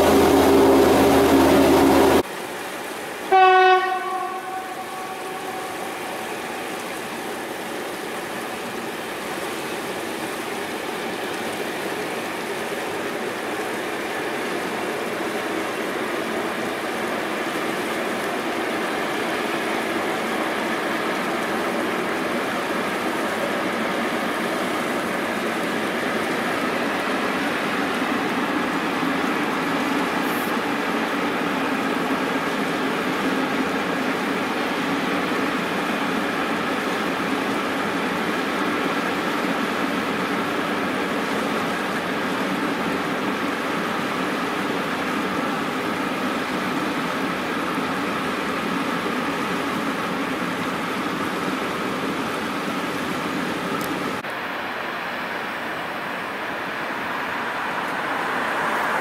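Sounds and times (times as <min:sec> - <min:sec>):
locomotive horn blast: 0:00.0 - 0:02.2, 0:03.3 - 0:06.2
electric locomotive humming: 0:00.0 - 0:59.0
freight train rolling: 0:00.0 - 0:59.0.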